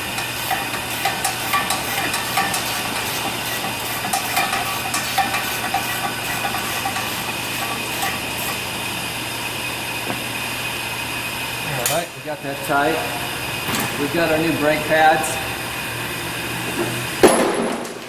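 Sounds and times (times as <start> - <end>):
machine hum and hiss: 0.0 - 18.0.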